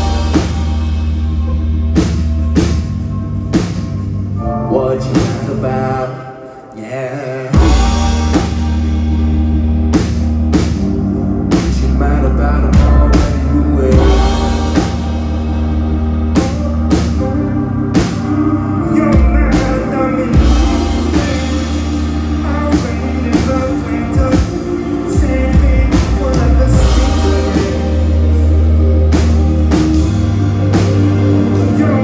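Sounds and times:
heavy bass: 0.0s - 6.1s, 7.5s - 32.0s
live band music: 0.0s - 32.0s
man singing: 4.4s - 9.0s, 11.5s - 32.0s
drum hits: 12.8s - 15.8s.

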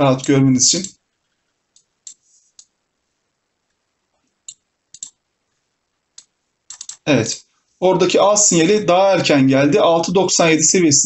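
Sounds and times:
computer mouse clicking: 0.2s - 2.7s, 4.4s - 5.2s, 6.1s - 7.0s.

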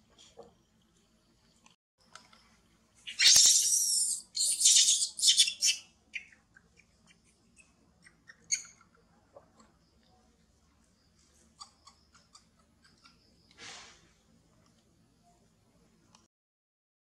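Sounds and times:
high chirps: 3.1s - 9.0s.

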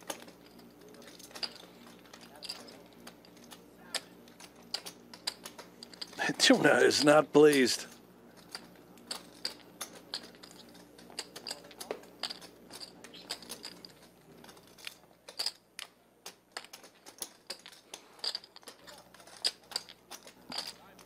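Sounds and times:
poker chips clicking: 8.4s - 21.0s.

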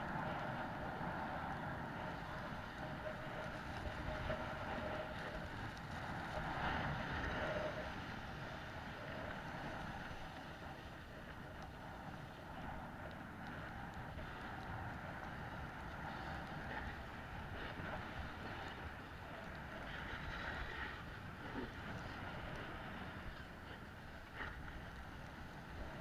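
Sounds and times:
wind buffeting microphone: 0.0s - 26.0s
snowboard scraping over snow: 0.1s - 12.2s.

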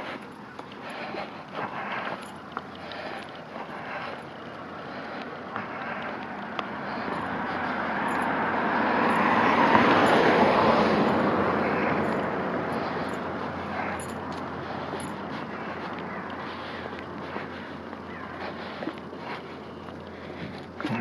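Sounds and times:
car passing by: 5.6s - 15.5s.

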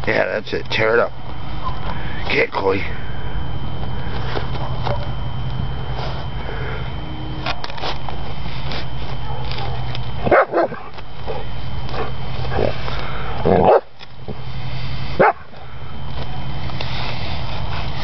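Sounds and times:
low hum: 0.0s - 18.0s
dog barking: 9.2s - 10.9s, 15.2s - 15.4s.

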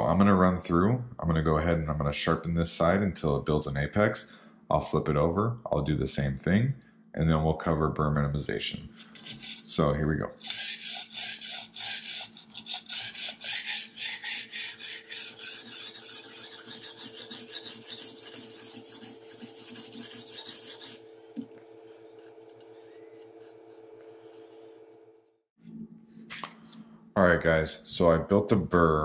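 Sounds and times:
faint steady hum: 0.0s - 29.0s
sharpening stone rasping on knife: 9.0s - 9.7s, 10.4s - 21.4s, 22.2s - 25.0s.

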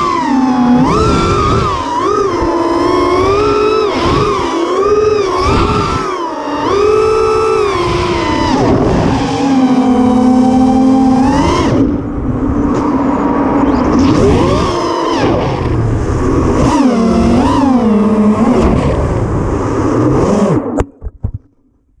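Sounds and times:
quadcopter motors whining: 0.0s - 20.9s.

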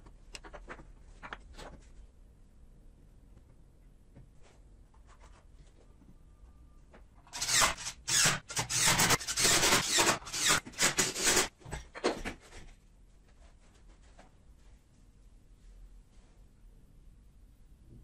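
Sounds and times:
impact driver bursts: 7.4s - 11.5s.

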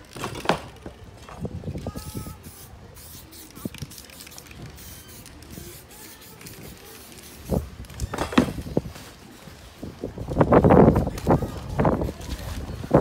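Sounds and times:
spray paint can hissing: 1.9s - 8.1s.

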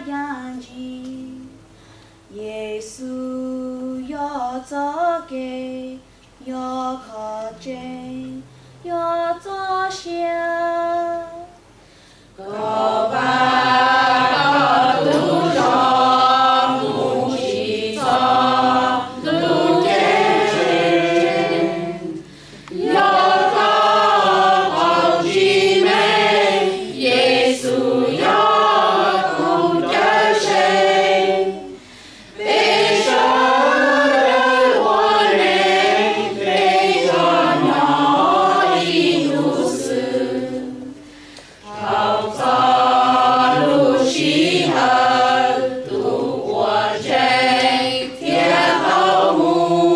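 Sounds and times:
mixed choir singing a hymn: 12.4s - 49.9s.

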